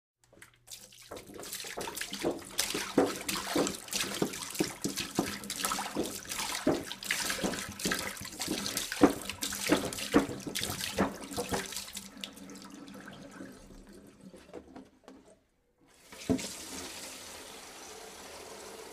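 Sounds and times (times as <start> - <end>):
water pouring from a jug: 0.2 - 14.6.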